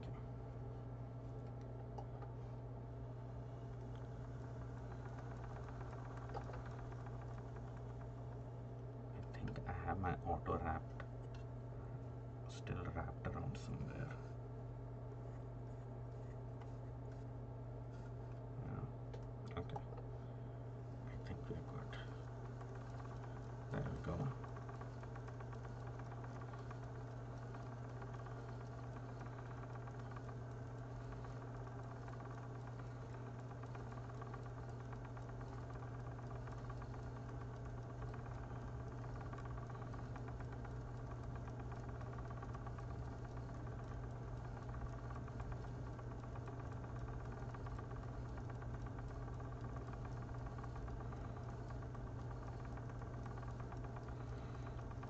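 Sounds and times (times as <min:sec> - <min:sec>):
electric spinning wheel humming: 0:00.0 - 0:55.0.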